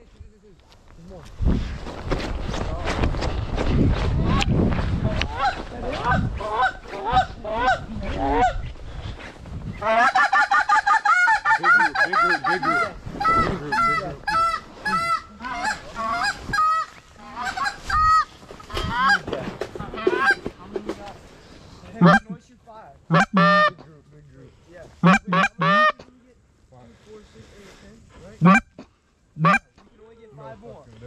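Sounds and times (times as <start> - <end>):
geese honking: 9.8 - 19.2, 19.8 - 20.5, 21.9 - 22.4, 23.1 - 23.8, 25.0 - 26.0, 28.4 - 28.7, 29.4 - 29.6.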